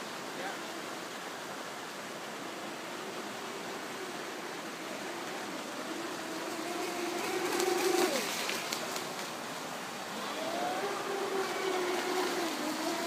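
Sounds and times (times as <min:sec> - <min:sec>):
steady hiss: 0:00.0 - 0:13.0
electric motor whining: 0:10.1 - 0:13.0.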